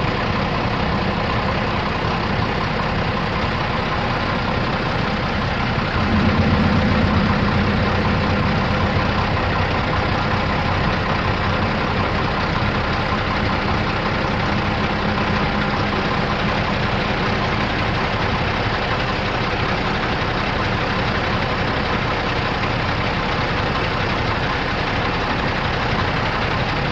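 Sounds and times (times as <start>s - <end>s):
diesel truck engine idling: 0.0s - 26.9s.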